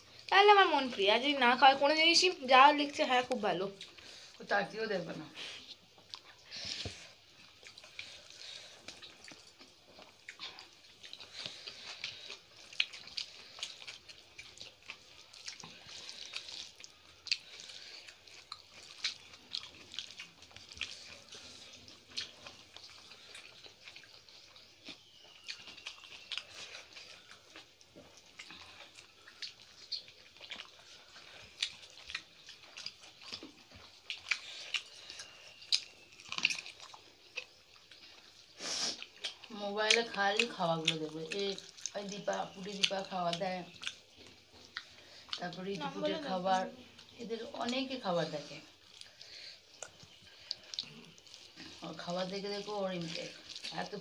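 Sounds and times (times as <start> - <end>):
chewing and mouth smacks: 2.3 - 4.5, 5.3 - 54.0
fingers mixing food clicks: 7.5 - 48.1, 48.8 - 54.0.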